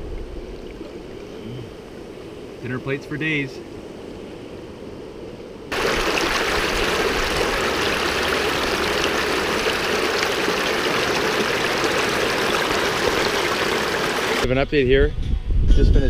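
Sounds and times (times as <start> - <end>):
river water rushing over rocks: 5.7 - 14.4.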